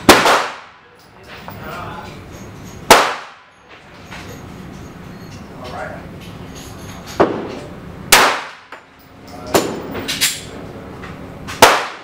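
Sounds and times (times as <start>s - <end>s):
pistol shots: 0.0s - 0.8s, 2.9s - 3.5s, 8.1s - 8.7s, 11.6s - 12.0s
sharp cracks: 0.0s - 0.8s, 2.9s - 3.5s, 8.1s - 8.7s, 11.6s - 12.0s.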